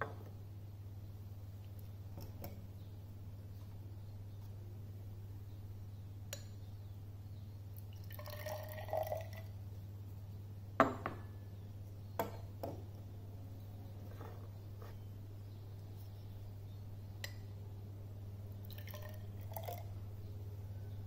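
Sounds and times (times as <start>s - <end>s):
low steady hum: 0.0s - 21.0s
water pouring into test tube: 7.9s - 9.5s, 18.7s - 19.9s.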